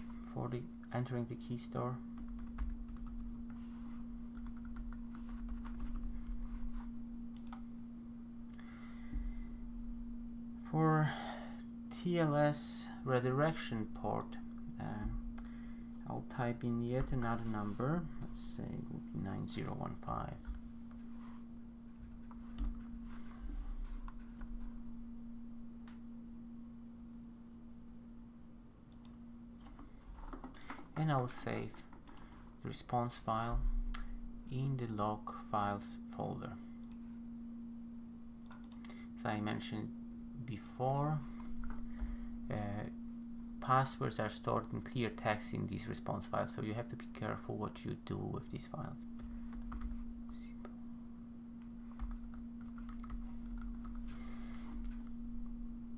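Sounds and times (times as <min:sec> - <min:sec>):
steady low hum: 0:00.0 - 0:55.9
computer keyboard typing: 0:02.2 - 0:03.3, 0:04.3 - 0:06.1, 0:49.2 - 0:50.0, 0:51.9 - 0:54.2.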